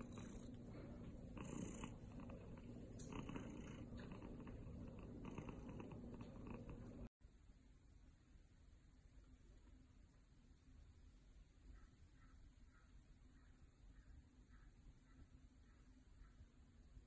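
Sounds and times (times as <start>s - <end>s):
cat purring: 0.0s - 7.1s.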